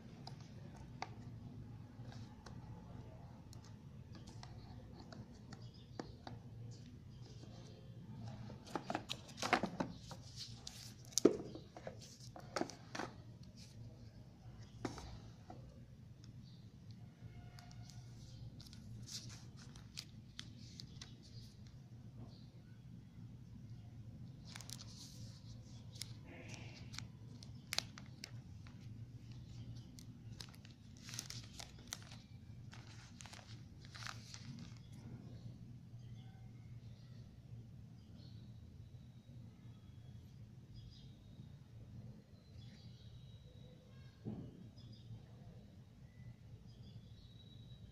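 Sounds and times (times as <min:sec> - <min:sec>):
plastic film peeling and crinkling: 0:17.5 - 0:21.7, 0:24.4 - 0:35.0.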